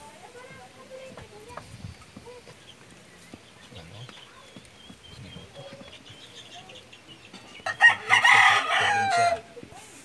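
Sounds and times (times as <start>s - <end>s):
faint background sound: 0.0s - 10.0s
rooster crowing: 7.6s - 9.5s.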